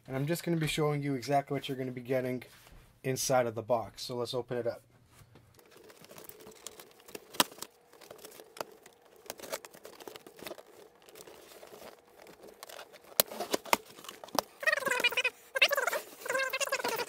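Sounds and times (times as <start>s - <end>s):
packaging crinkling and tearing: 5.5s - 17.0s.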